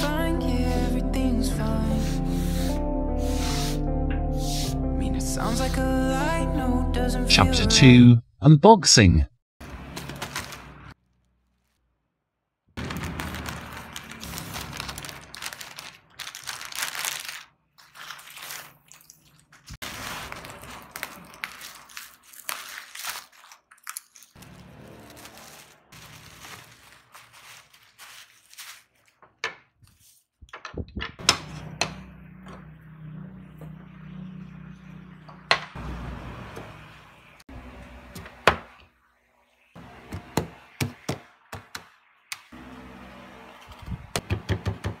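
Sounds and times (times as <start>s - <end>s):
plastic bags crinkling: 9.9s - 11.8s, 12.8s - 29.4s.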